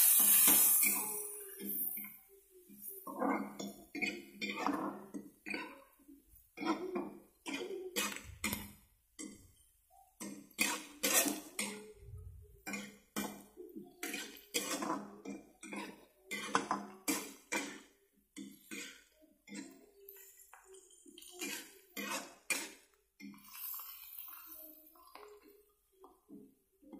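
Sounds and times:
metal spatula scraping a wok: 0:00.0 - 0:01.0, 0:10.6 - 0:11.5.

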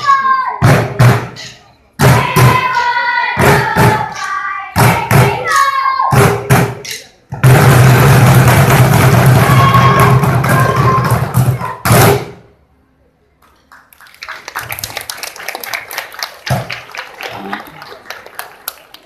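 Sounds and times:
group drumming with music: 0:00.6 - 0:01.4, 0:02.0 - 0:06.8, 0:07.4 - 0:12.4
crowd applause: 0:13.7 - 0:19.0.

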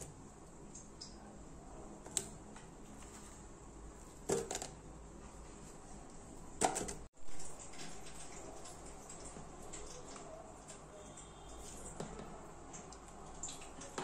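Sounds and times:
low room noise: 0:00.0 - 0:14.0.

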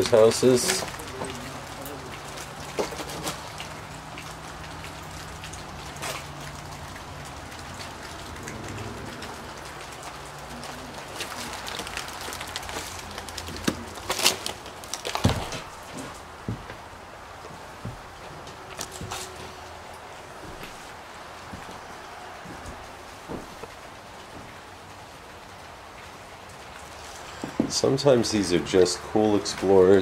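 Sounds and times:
rain pattering: 0:00.0 - 0:30.0
footsteps crunching on debris: 0:09.8 - 0:24.6.

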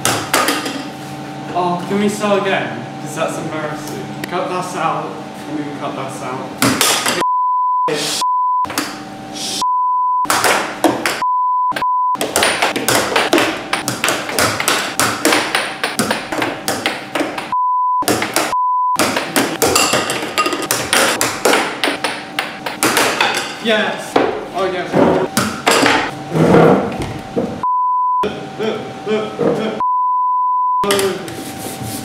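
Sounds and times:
censor bleep: 0:07.2 - 0:08.7, 0:09.6 - 0:10.3, 0:11.2 - 0:12.2, 0:17.5 - 0:19.0, 0:27.6 - 0:28.3, 0:29.8 - 0:30.9
air hockey puck clacking: 0:12.2 - 0:23.6.

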